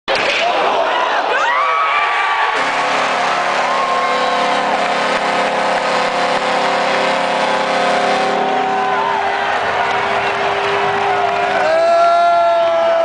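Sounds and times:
crowd cheering: 0.1s - 13.0s
goal horn blast: 2.6s - 11.1s.

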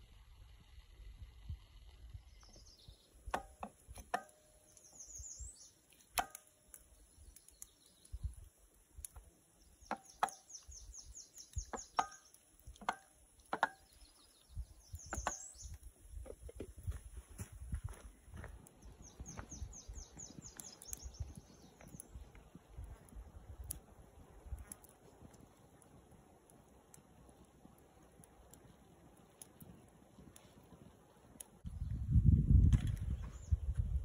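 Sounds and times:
songbird trilling: 9.7s - 12.4s, 13.7s - 15.8s.

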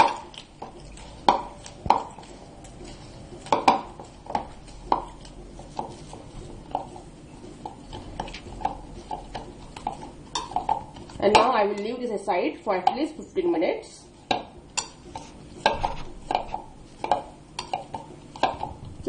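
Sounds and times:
dough kneaded in bowl thudding: 0.0s - 11.9s, 14.2s - 19.0s.

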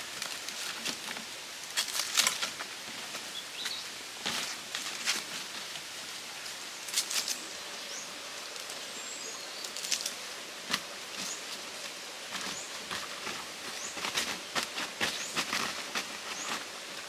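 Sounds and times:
leaves rustling and crackling: 0.0s - 17.0s
birds chirping: 3.3s - 4.6s, 6.7s - 10.3s, 11.0s - 16.8s.

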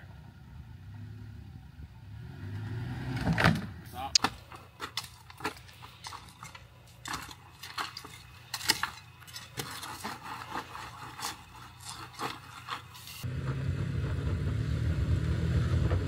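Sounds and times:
sand scraping and scooping by hand: 4.5s - 13.3s.

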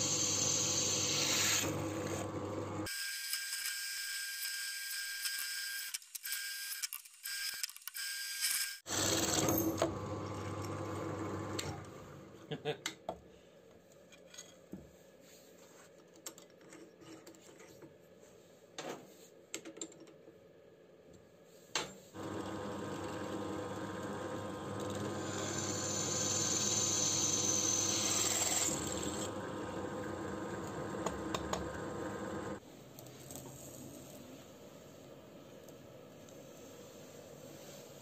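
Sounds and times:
electric drill boring metal: 0.0s - 2.2s, 22.2s - 32.6s.

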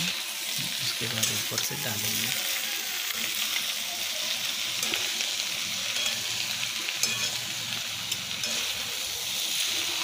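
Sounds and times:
vegetables sizzling in pan: 0.0s - 10.0s
spatula scraping pan: 4.6s - 10.0s.

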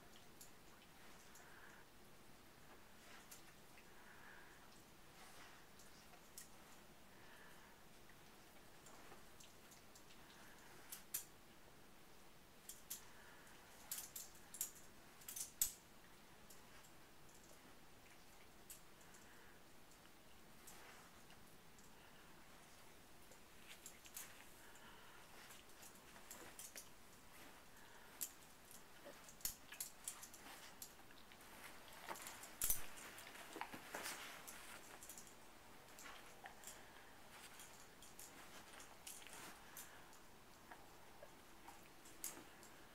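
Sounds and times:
dog rooting in blankets: 20.5s - 42.9s.

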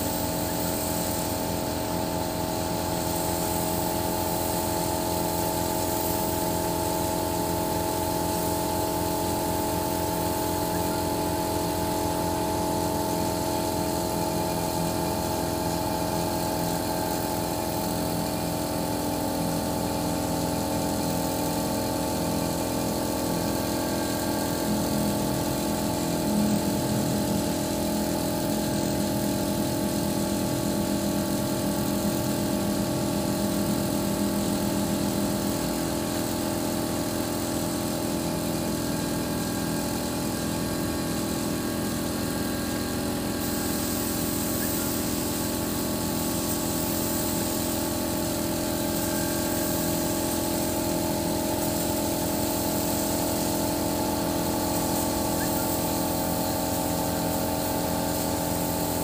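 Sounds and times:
truck engine running: 0.0s - 59.0s.

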